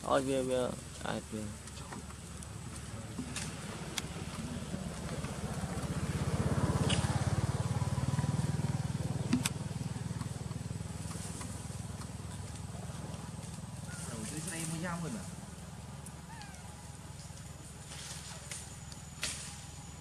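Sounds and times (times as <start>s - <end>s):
motorcycle engine passing: 2.6s - 17.0s.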